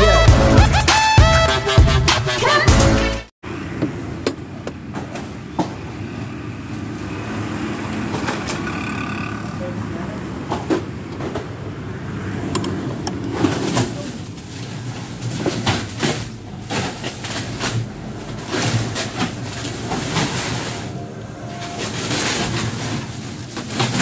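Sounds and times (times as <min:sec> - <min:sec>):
vehicle engine humming: 0:05.8 - 0:15.0, 0:16.4 - 0:23.3
ice sacks knocking and rustling: 0:13.4 - 0:24.0.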